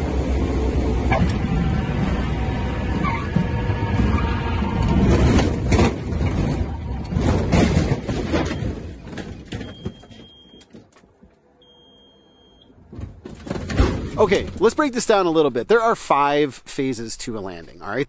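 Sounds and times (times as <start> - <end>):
plane cabin rumbling and rattling: 0.0 - 11.4, 12.7 - 15.0
jolts and thuds: 7.2 - 10.1, 12.9 - 14.6.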